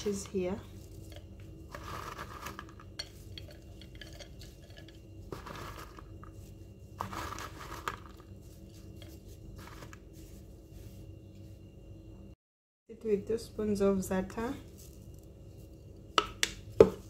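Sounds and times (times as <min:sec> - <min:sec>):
grated cheese rustling: 0:00.0 - 0:11.1.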